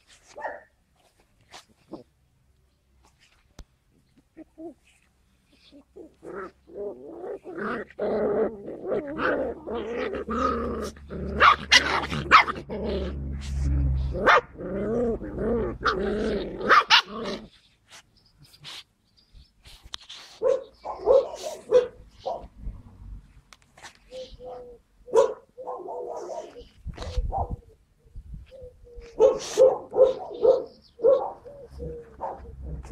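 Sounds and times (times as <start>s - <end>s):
puppies growling and yapping: 5.6s - 17.7s, 31.4s - 32.9s
puppy yips: 28.6s - 32.6s.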